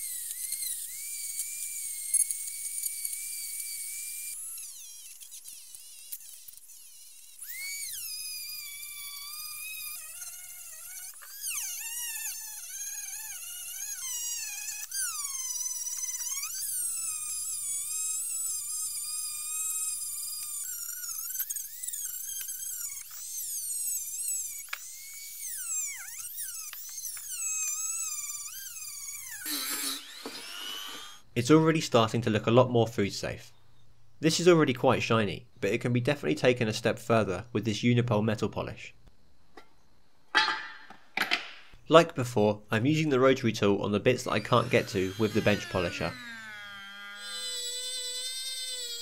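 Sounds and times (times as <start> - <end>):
rotary tool wire brush on metal: 44.1 - 49.0.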